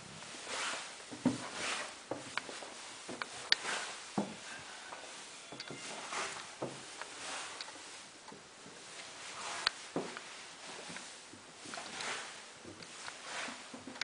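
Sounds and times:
rustling: 0.0s - 14.0s
footsteps on wooden stairs: 1.0s - 7.6s, 9.7s - 12.0s.

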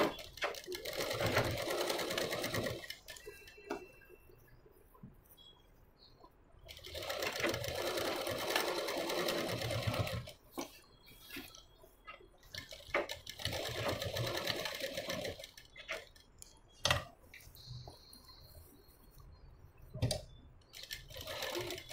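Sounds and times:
sewing machine stitching: 0.0s - 3.5s, 6.7s - 10.4s, 12.5s - 16.2s, 20.7s - 21.9s.

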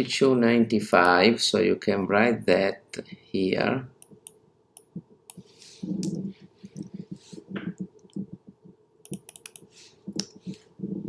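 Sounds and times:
computer keyboard typing: 9.0s - 10.2s.

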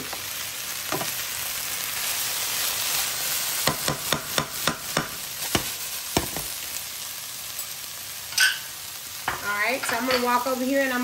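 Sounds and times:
food sizzling in a frying pan: 0.0s - 11.0s
spoon scraping and knocking pan: 3.6s - 6.5s, 8.3s - 10.5s.

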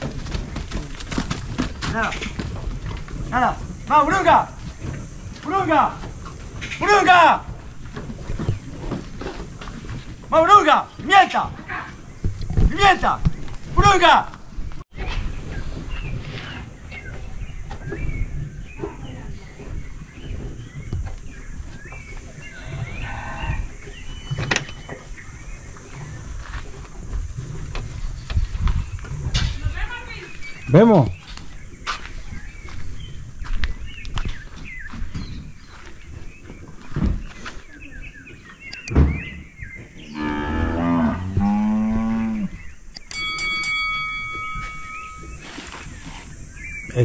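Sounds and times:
cow mooing: 40.1s - 42.6s
bell-like ringing tone: 43.1s - 46.0s.

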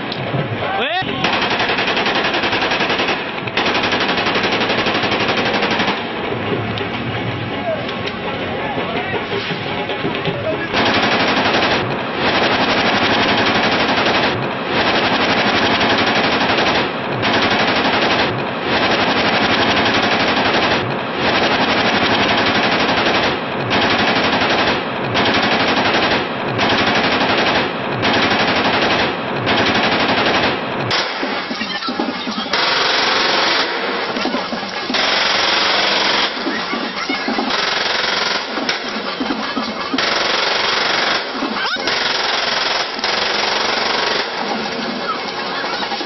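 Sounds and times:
automatic rifle fire: 1.2s - 6.2s, 10.7s - 31.6s, 32.5s - 36.6s, 37.5s - 39.1s, 39.8s - 44.7s.

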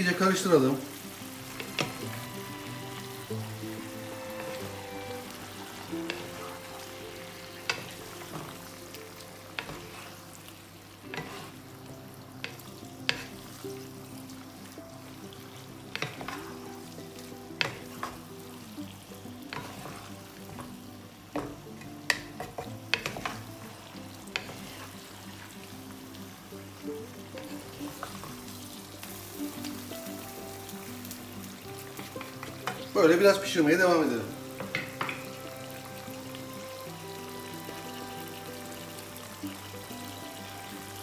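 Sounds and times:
food sizzling in a wok: 0.0s - 41.0s
wooden spatula scraping pan: 3.7s - 8.7s, 9.6s - 10.2s, 11.1s - 11.6s, 12.4s - 13.5s, 15.9s - 16.8s, 17.6s - 18.2s, 19.4s - 20.7s, 21.3s - 23.5s, 24.3s - 25.5s.

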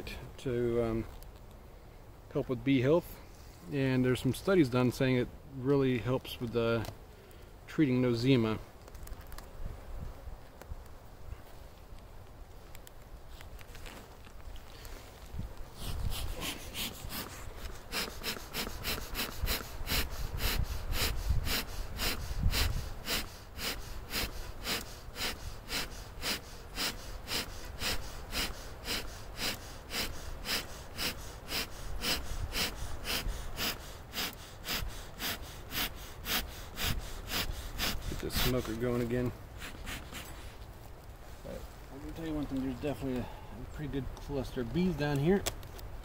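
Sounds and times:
bellows puffing air: 15.7s - 40.6s.

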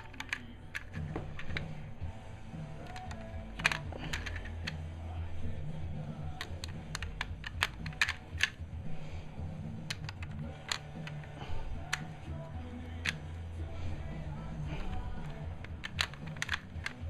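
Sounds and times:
plastic toy bricks clicking: 0.0s - 1.7s, 2.8s - 4.8s, 6.3s - 8.6s, 9.8s - 13.3s, 14.7s - 17.0s.

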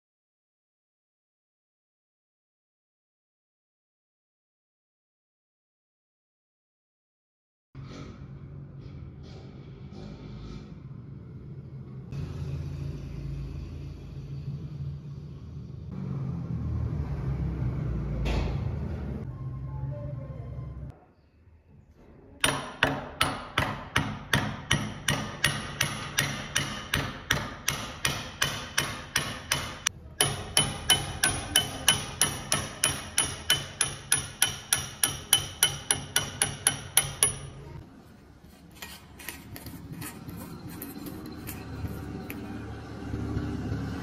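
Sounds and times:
hammer striking hatchet head: 22.4s - 37.6s.

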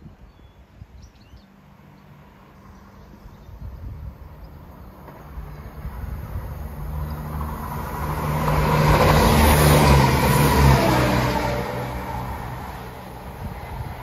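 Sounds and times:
diesel train engine hum: 4.0s - 14.0s.

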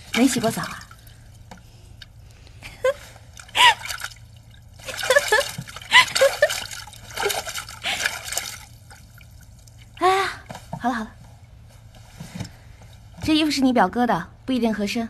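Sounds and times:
bathwater splashing in tub: 0.0s - 1.6s, 3.0s - 10.7s.

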